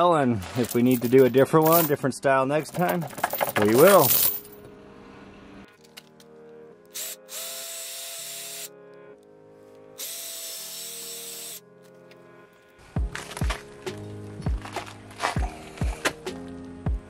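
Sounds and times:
background music: 0.0 - 17.0
cordless drill boring wood: 7.0 - 8.7, 10.0 - 11.6.

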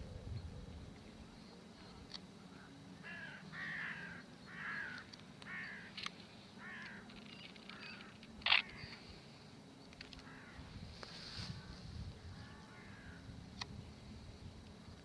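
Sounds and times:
crow cawing: 2.6 - 6.0, 6.6 - 7.1, 10.2 - 10.7, 12.4 - 13.2.

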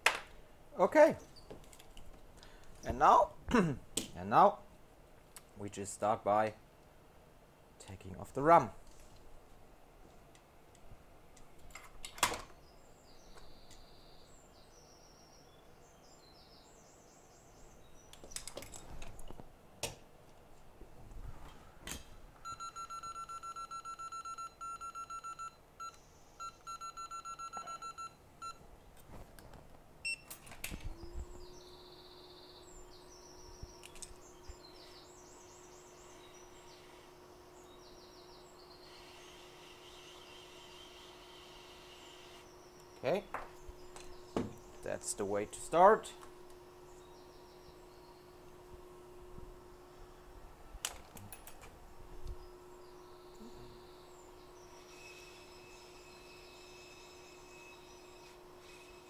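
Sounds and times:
electronic beep: 22.5 - 28.6
hot-air blower hum: 30.8 - 59.0.

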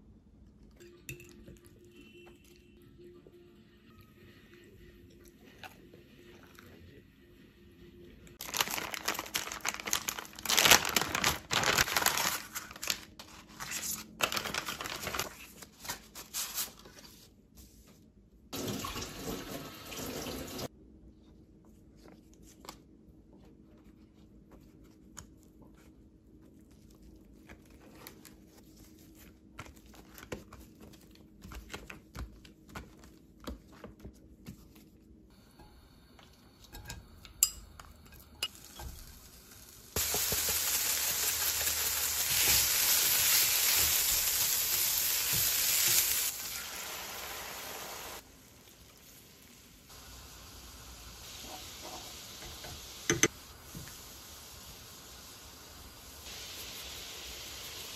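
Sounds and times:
splashing and crinkling: 8.4 - 16.8
tap water running: 18.6 - 20.7.

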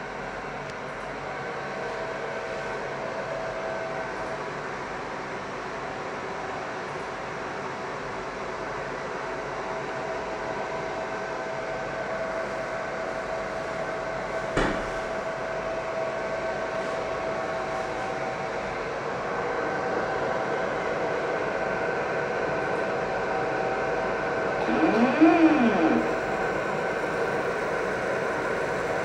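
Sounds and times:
laser marking machine hum: 24.2 - 29.0.

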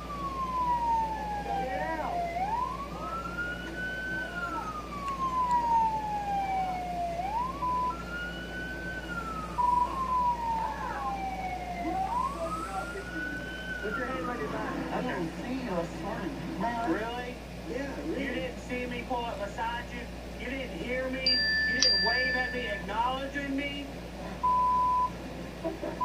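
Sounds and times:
short steady siren blips: 0.0 - 14.6
siren wailing: 0.0 - 15.3, 21.6 - 23.0.

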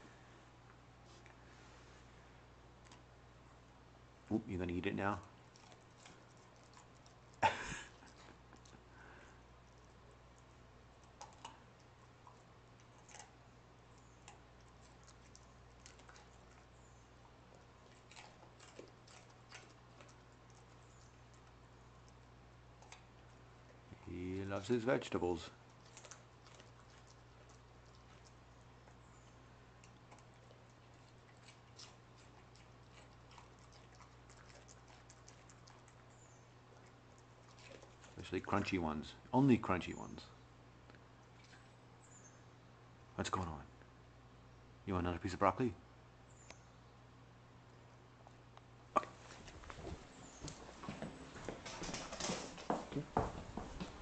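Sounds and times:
low steady hum: 0.0 - 54.0
dog chewing crunches: 5.0 - 8.8, 9.6 - 23.9, 25.6 - 38.7, 49.0 - 54.0.

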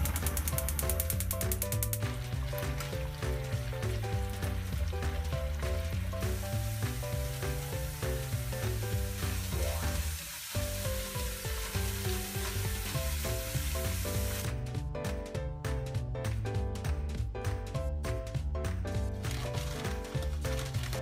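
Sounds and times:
sizzling in hot oil: 0.0 - 14.5
background music: 0.0 - 21.0.

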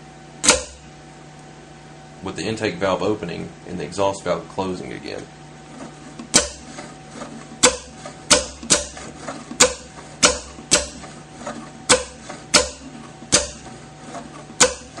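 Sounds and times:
pneumatic valves clicking sharply: 0.4 - 0.8, 7.6 - 9.0, 9.6 - 11.0.

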